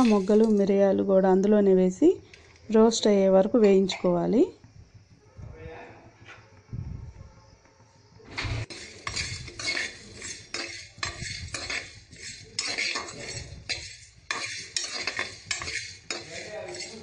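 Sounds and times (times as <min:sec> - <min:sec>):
metal spoon scraping pan: 0:00.0 - 0:00.7, 0:08.4 - 0:17.0
seeds rattling: 0:00.0 - 0:00.7.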